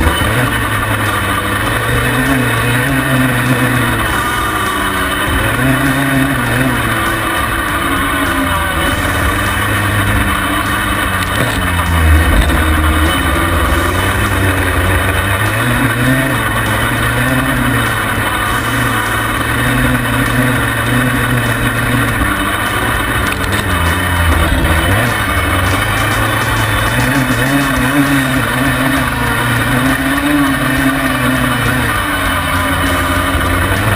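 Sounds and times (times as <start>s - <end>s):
quad bike engine revving: 0.0s - 33.9s.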